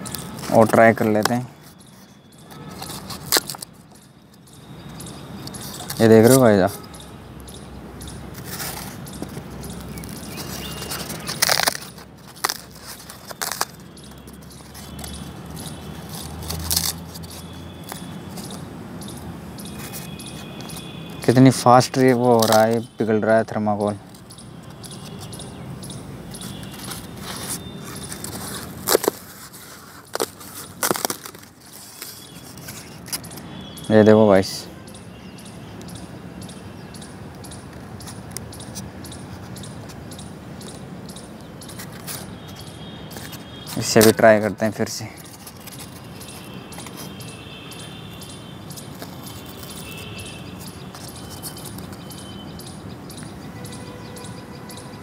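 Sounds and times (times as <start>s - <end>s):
high bird chirps: 1.0s - 23.2s, 23.9s - 29.0s, 30.0s - 44.2s, 45.2s - 55.0s
polystyrene foam snapping: 10.6s - 13.8s, 28.0s - 32.2s.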